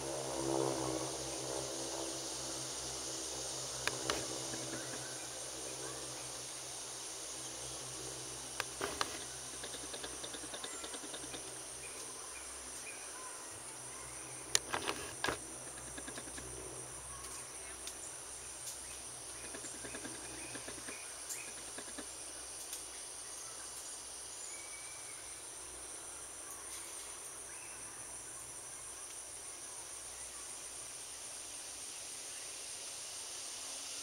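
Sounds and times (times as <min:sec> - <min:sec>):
high-pitched insect chirring: 0:00.2 - 0:22.8
faint ticks: 0:08.6 - 0:11.5, 0:14.5 - 0:16.5, 0:19.4 - 0:22.9.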